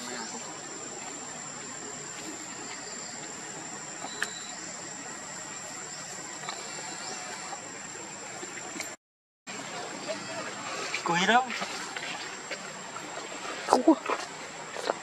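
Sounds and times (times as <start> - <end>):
high-pitched insect drone: 0.0 - 8.9.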